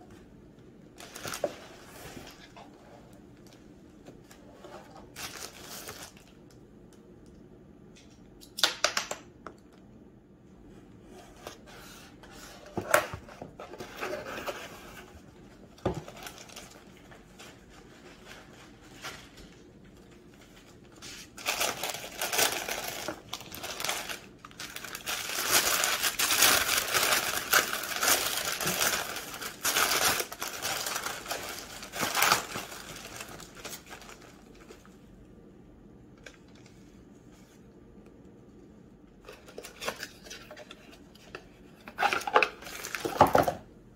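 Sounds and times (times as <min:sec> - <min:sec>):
paper and bubble wrap rustling: 0:00.9 - 0:03.6, 0:04.2 - 0:06.4, 0:11.3 - 0:35.0.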